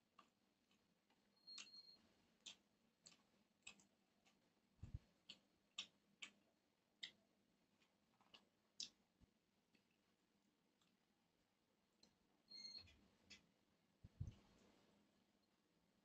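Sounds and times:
fingers eating rice from steel plate: 0.0s - 11.1s
person chewing: 0.1s - 9.1s, 10.7s - 11.1s.

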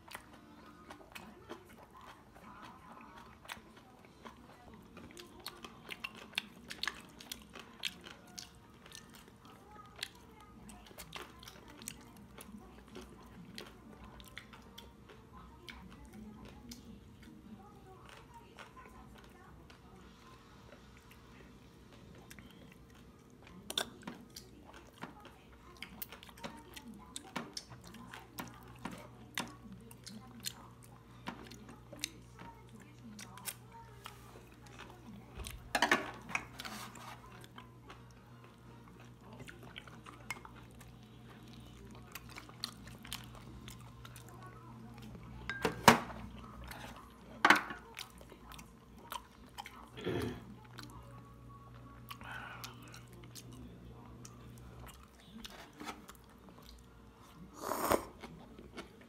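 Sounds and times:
chewing: 0.0s - 59.0s
utensils clinking on ceramic bowls: 45.5s - 46.0s.

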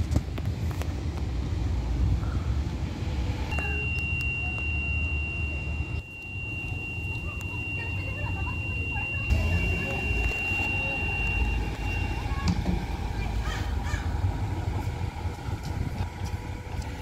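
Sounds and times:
bus engine idling: 0.0s - 17.0s
high-pitched electronic tone: 3.5s - 13.3s.

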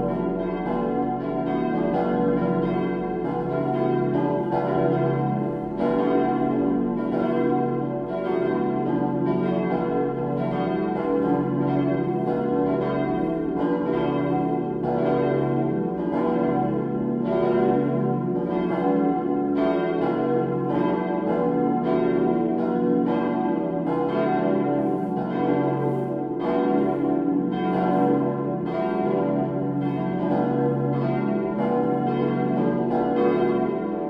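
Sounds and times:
church bells pealing: 0.0s - 34.0s.

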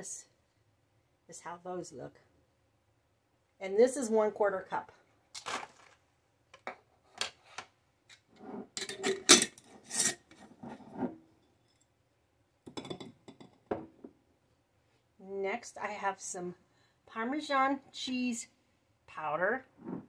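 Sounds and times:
glass jars clinking and scraping: 8.2s - 11.9s, 12.7s - 13.9s.

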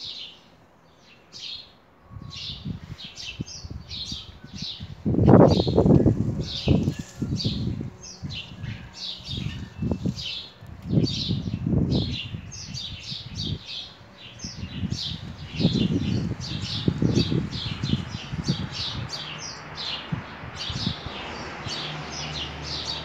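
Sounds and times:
low rumbling bursts: 9.3s - 21.7s.

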